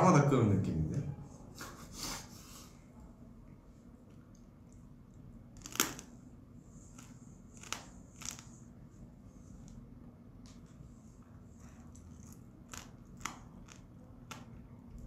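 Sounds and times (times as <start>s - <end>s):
crunching crab shell: 5.6s - 6.1s, 12.3s - 14.7s.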